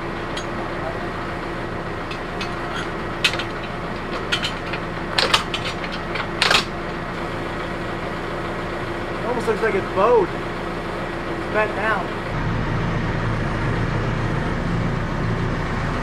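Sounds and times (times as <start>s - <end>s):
tractor engine idling: 0.0s - 16.0s
metallic clinks of hitch parts: 0.2s - 0.9s, 2.0s - 6.8s.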